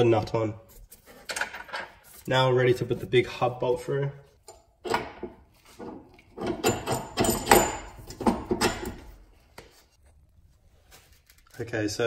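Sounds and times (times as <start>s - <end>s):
metal bolt scraping and knocking: 1.2s - 2.0s, 4.4s - 9.2s.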